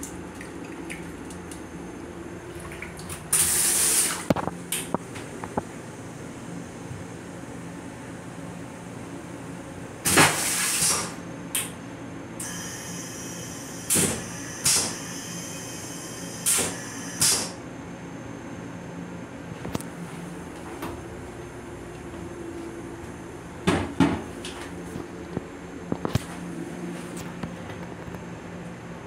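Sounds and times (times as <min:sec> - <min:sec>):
toilet flushing hiss: 0:03.3 - 0:04.3, 0:10.1 - 0:11.2.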